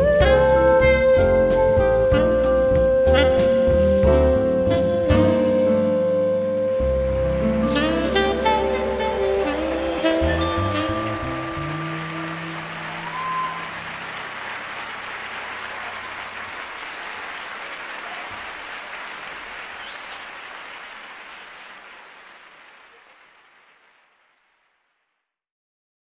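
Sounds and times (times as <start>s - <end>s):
audience applause: 7.2s - 25.0s.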